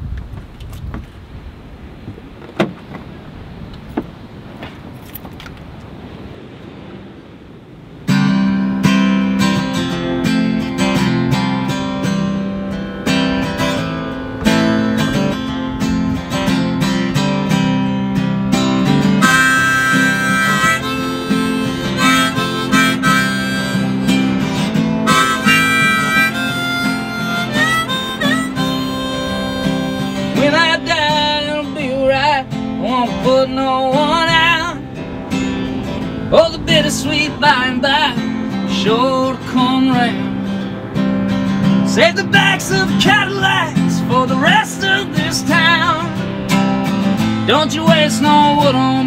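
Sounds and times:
acoustic guitar strumming: 8.0s - 49.0s
harmonica: 19.0s - 31.2s.

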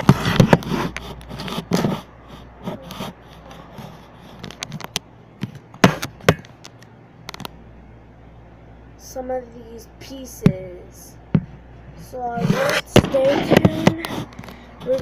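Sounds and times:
hands rubbing plastic: 0.0s - 5.0s, 12.1s - 15.0s.

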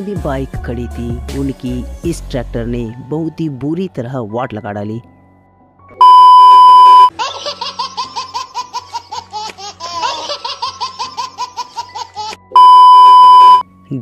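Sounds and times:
high test-tone beep: 6.0s - 7.1s, 12.6s - 13.6s.

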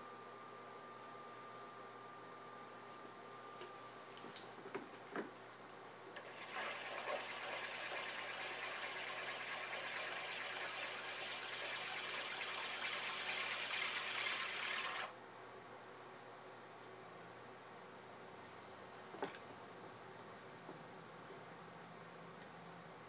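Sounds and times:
wet hiss of clay on pottery wheel: 6.2s - 15.1s.

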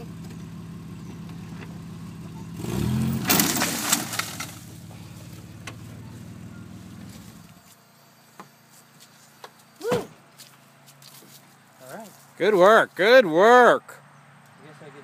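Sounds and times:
vehicle engine revving: 0.0s - 7.6s
fence pulled out of ground: 2.6s - 4.9s.

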